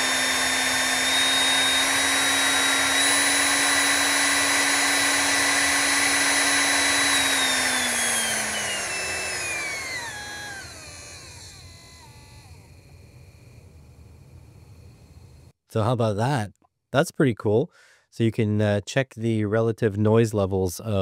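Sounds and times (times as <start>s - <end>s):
electric motor whining: 0.0s - 15.4s.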